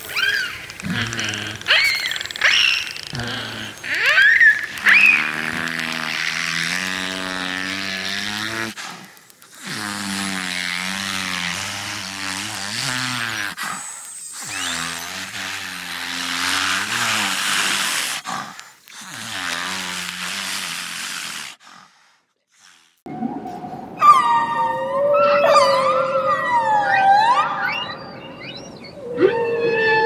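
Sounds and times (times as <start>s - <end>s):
beluga whale calls: 0.1s - 6.6s, 24.0s - 30.0s
rising whistle: 23.1s - 30.0s.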